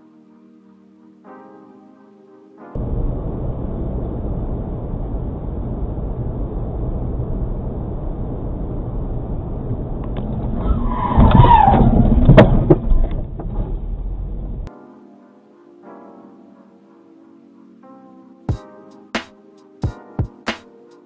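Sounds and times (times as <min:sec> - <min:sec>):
car road and engine noise: 0:02.8 - 0:14.7.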